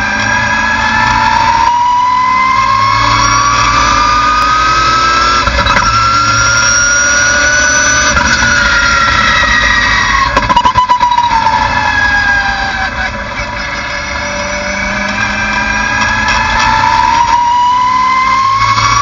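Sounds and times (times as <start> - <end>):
race car engine accelerating: 0.0 - 10.4, 11.0 - 19.0.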